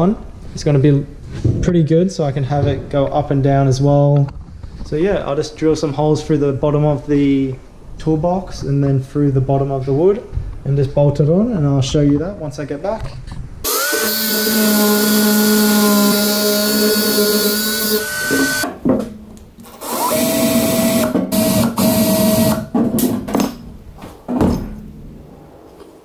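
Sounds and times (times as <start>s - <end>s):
cordless drill drilling metal: 13.6s - 18.7s, 19.7s - 22.7s.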